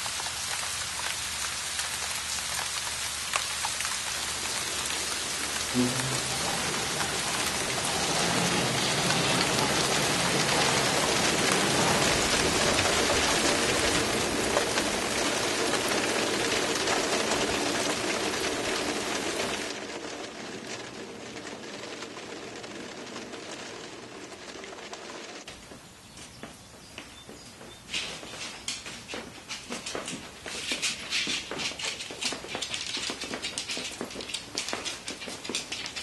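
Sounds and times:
heavy rain falling: 0.0 - 25.5.

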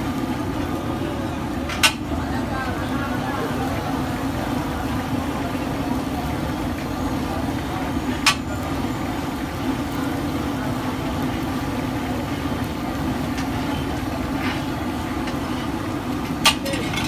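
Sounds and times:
fish deep-frying in oil: 0.0 - 17.0
metal tongs clinking on wok: 16.5 - 17.0.

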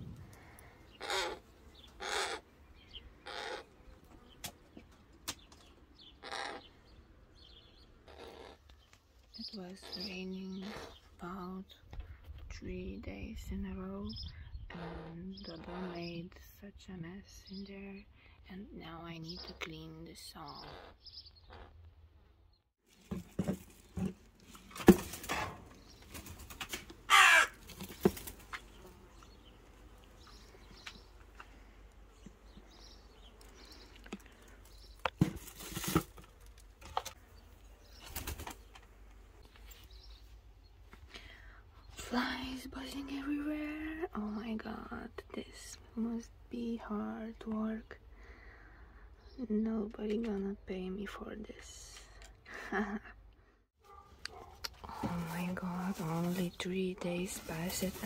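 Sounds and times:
crow cawing: 1.0 - 1.4, 2.0 - 2.4, 3.2 - 3.7, 6.2 - 6.7, 27.1 - 27.6
sharp knocks and thumps: 23.0 - 25.8.

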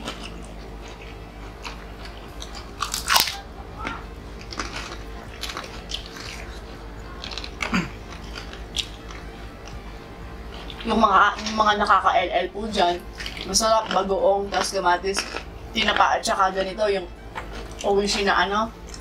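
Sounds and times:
crunching and chewing crackers: 0.0 - 9.8, 13.1 - 16.6, 17.3 - 19.0.

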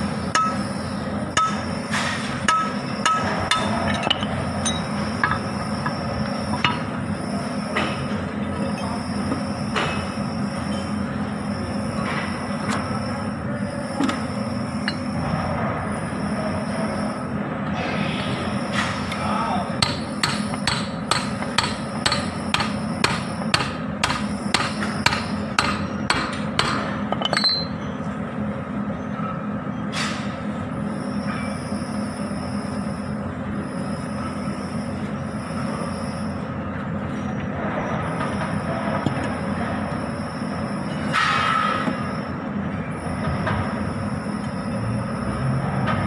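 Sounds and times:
hammer striking steel pipe: 0.3 - 0.6, 1.4 - 1.6, 2.5 - 5.4, 19.8 - 27.7.

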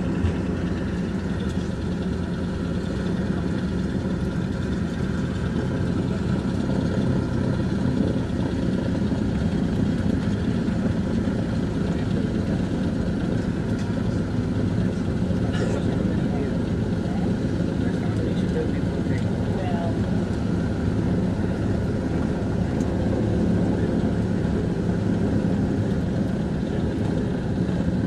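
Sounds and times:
propeller engines droning: 0.0 - 28.0.

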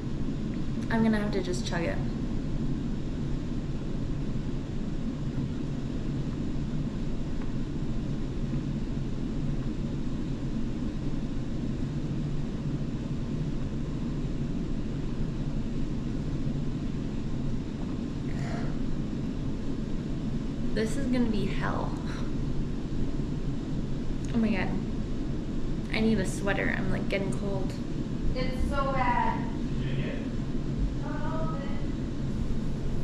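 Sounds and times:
low room hum and rumble: 0.0 - 33.0.

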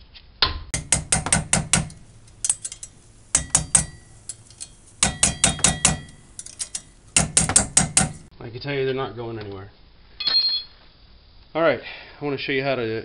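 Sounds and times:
mallet tapping wrench handle: 0.8 - 8.3
steel wrench ringing: 0.8 - 8.3.

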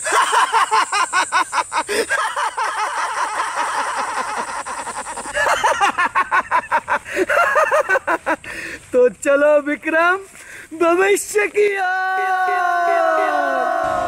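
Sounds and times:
man laughing loudly: 0.0 - 8.5.

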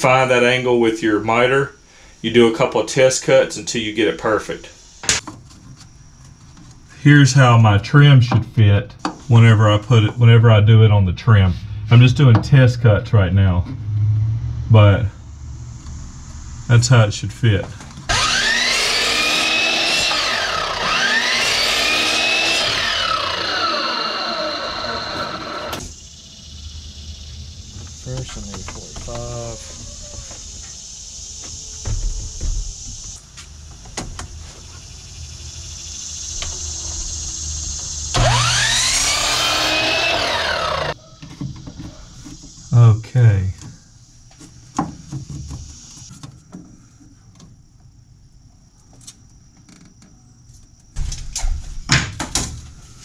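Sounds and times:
miter saw motor whine: 18.1 - 27.9, 34.9 - 41.0.

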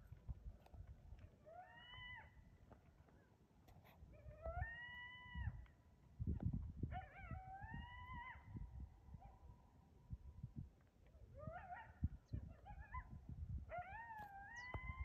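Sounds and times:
coyote howling: 1.4 - 2.5, 4.1 - 5.6, 6.9 - 9.4, 11.3 - 15.0.

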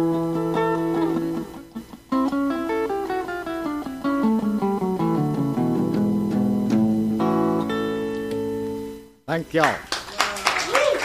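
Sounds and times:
guitar picking single notes: 0.0 - 9.2.

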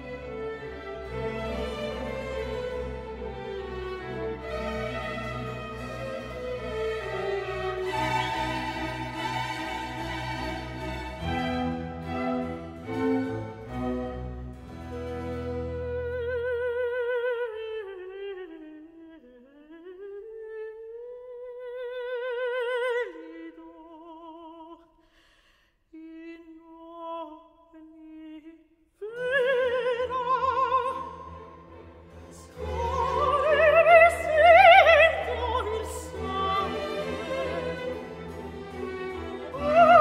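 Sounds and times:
string orchestra: 0.0 - 20.5, 26.0 - 40.0
woman singing opera: 15.5 - 24.9, 25.9 - 31.6, 32.2 - 40.0.

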